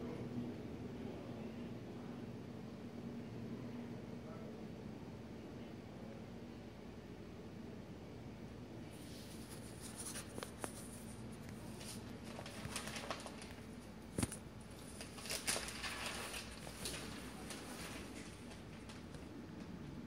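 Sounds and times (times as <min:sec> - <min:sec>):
low room hum: 0:00.0 - 0:20.0.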